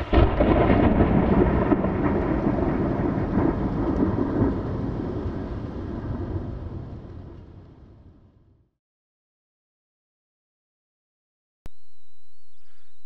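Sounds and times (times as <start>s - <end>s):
thunder crack and rumble: 0.0s - 8.7s.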